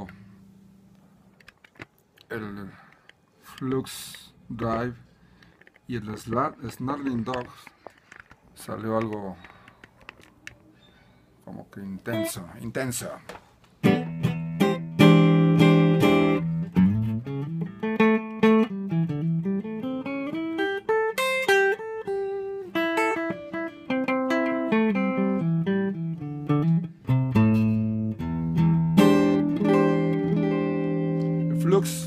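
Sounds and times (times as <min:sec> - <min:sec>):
overdriven electric guitar: 0:13.8 - 0:32.0.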